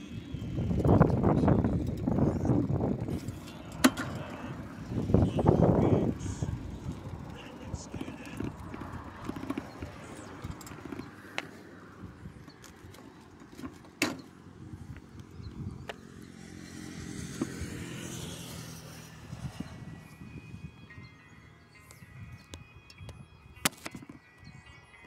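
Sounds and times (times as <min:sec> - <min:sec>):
bicycle rumbling on asphalt: 0:00.0 - 0:20.9
small rattles and clicks: 0:00.5 - 0:11.6.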